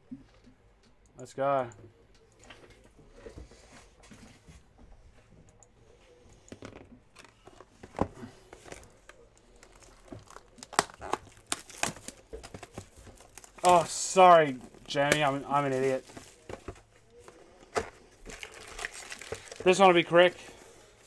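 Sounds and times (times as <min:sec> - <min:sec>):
plastic shrink wrap crinkling: 0:08.5 - 0:21.0.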